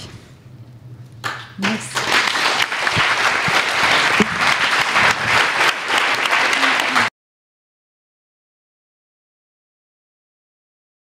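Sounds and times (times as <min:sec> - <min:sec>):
audience applauding: 0:01.2 - 0:07.1.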